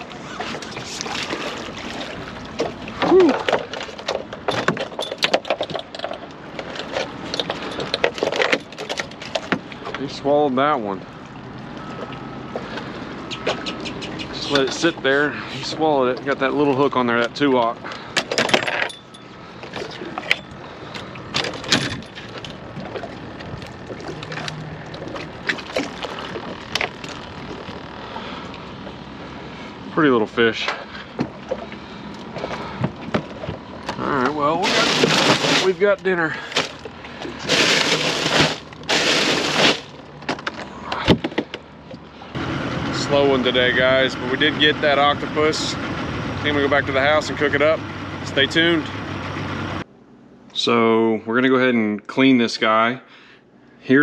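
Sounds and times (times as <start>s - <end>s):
fish flopping on boat deck: 0.0s - 10.0s, 19.2s - 29.8s, 30.6s - 42.3s.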